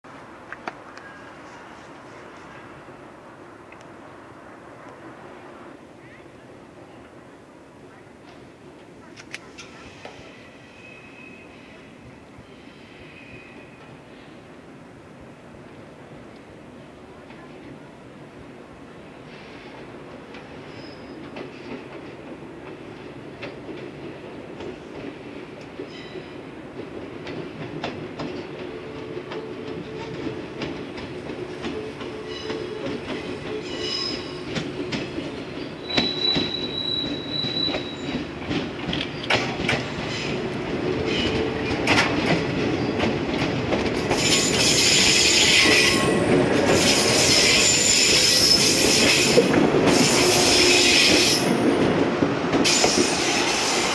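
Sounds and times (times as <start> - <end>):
electric train passing: 18.1 - 53.9.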